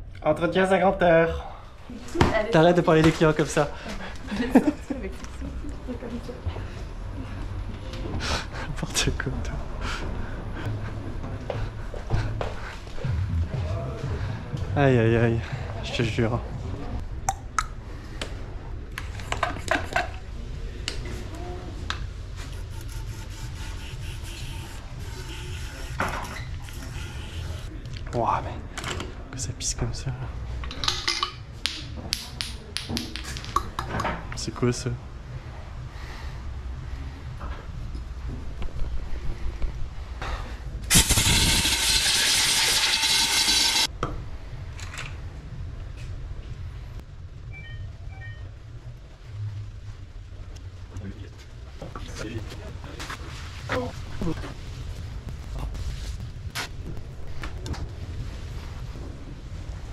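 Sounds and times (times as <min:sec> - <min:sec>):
steady low hum: 0:03.6 - 0:19.4, 0:43.6 - 0:59.9
pressurised air jet hissing: 0:40.9 - 0:43.9.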